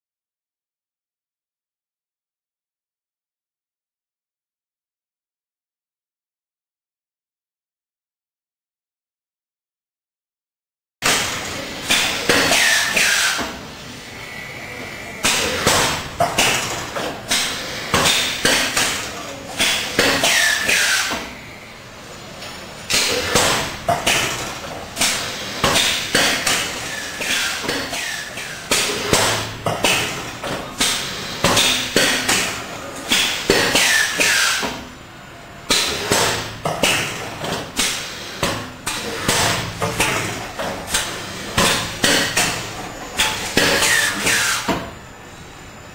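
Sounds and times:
machine whine: 11.1s - 45.9s
machine clattering: 35.7s - 44.5s.

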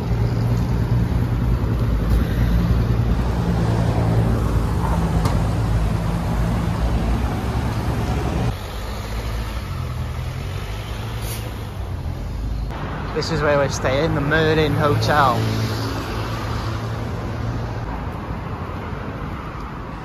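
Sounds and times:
engine running close by: 0.0s - 13.0s
cars passing: 0.0s - 20.0s.

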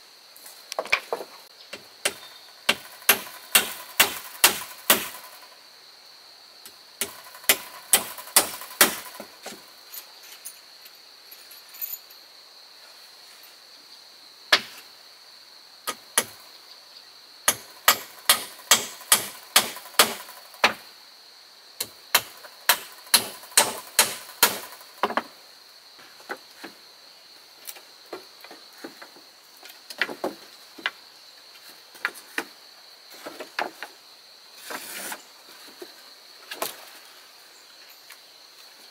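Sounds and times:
high insect drone: 0.0s - 38.9s
hand tool striking wood: 0.8s - 5.4s, 7.0s - 9.6s, 15.9s - 16.4s, 17.5s - 20.8s, 21.8s - 25.3s.

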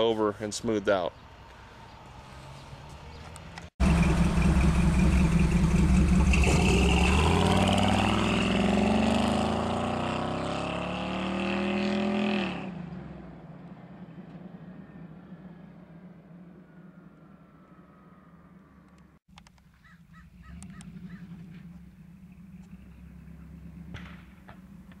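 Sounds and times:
car engine accelerating away: 2.1s - 15.9s, 20.4s - 25.0s.

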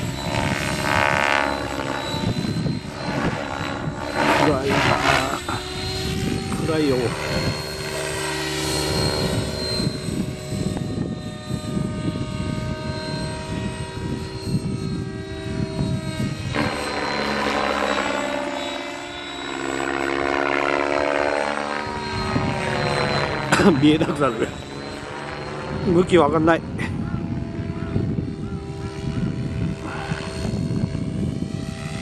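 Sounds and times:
rotor blades whooshing: 0.0s - 11.5s
helicopter motor whine: 0.0s - 32.0s.

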